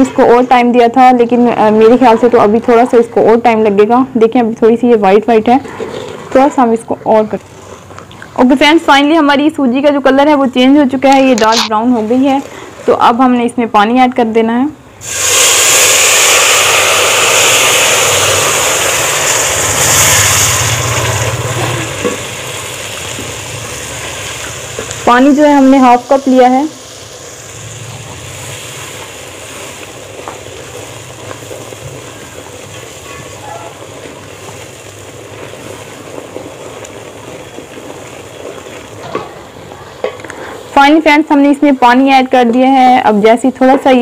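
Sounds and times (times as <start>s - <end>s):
water sizzling in a hot pan: 15.0s - 43.0s.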